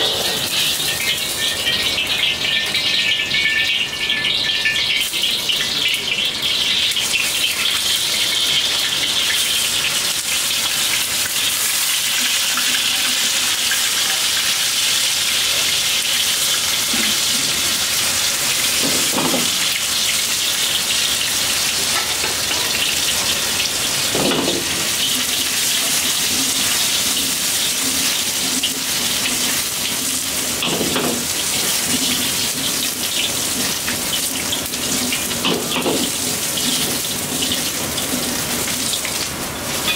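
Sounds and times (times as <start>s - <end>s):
dumplings sizzling in hot oil: 0.0s - 39.9s.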